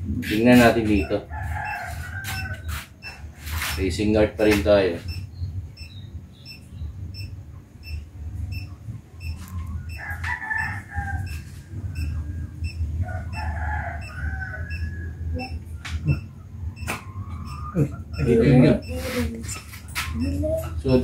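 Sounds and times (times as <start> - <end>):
rooster crowing: 0.9 - 3.2, 9.9 - 12.1, 13.0 - 15.5
steady low rumble: 5.0 - 21.0.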